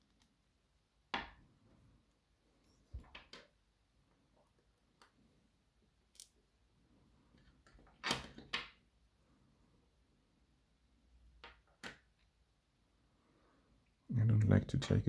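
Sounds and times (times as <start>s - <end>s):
small metal parts clicking on wood: 6.1s - 6.4s.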